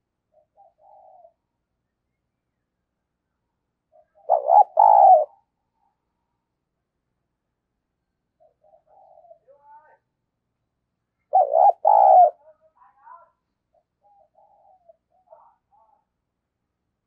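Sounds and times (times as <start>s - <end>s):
dove cooing: 0.3s - 1.4s, 3.9s - 5.4s, 8.4s - 9.5s, 11.3s - 12.4s, 13.7s - 15.4s.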